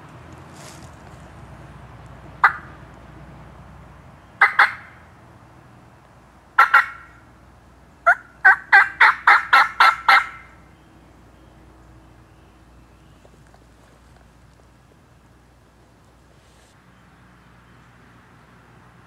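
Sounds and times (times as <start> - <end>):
turkey yelping: 2.4 - 2.8, 4.4 - 5.0, 6.6 - 7.2, 8.0 - 10.6.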